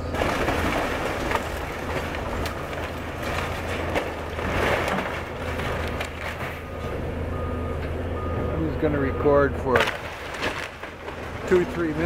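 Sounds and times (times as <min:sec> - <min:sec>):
wood cracking and crunching: 0:00.0 - 0:06.7, 0:09.7 - 0:12.0
excavator diesel engine running: 0:00.0 - 0:12.0.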